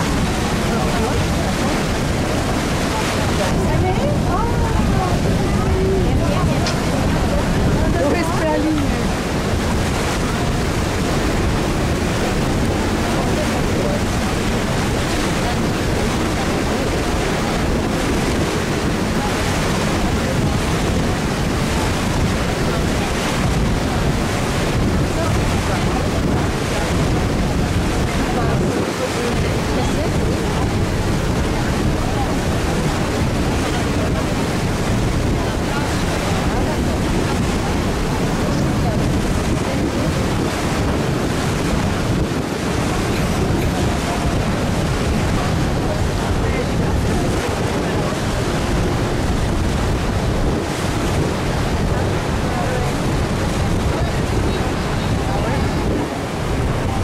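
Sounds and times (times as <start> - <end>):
water along boat hull: 0.0 - 57.0
wind on microphone: 0.0 - 57.0.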